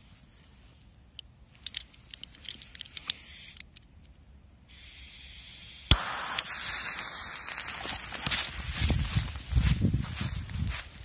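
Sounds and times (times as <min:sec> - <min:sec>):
firecracker fuse hissing: 0:03.2 - 0:03.6, 0:04.7 - 0:08.6
firecracker crack: 0:04.7 - 0:08.6.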